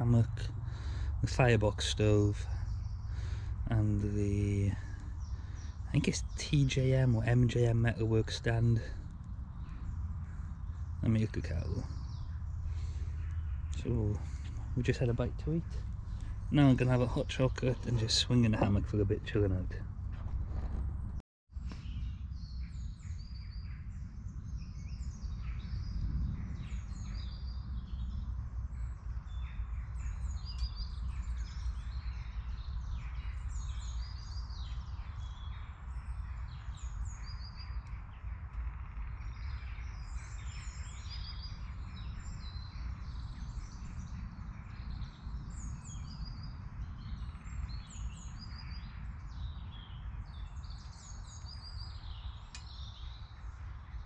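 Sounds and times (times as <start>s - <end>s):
steady low rumble: 0.0s - 33.6s
songbirds chirping and singing: 0.0s - 54.0s.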